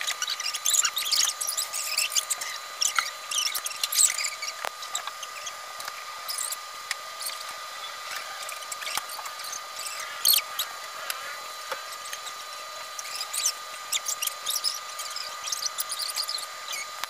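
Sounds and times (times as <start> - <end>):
steady high whine: 0.0 - 17.0.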